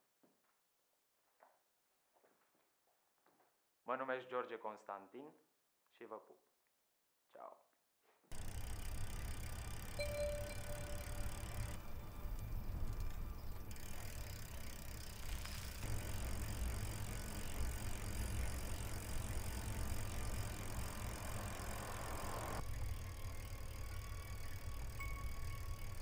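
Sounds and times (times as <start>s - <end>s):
bicycle tyre and drivetrain noise: 8.3s - 26.0s.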